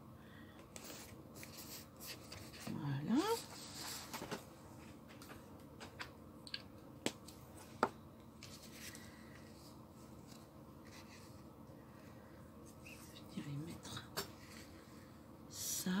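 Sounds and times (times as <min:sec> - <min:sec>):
paper rustling: 0:00.8 - 0:02.7, 0:03.3 - 0:04.5.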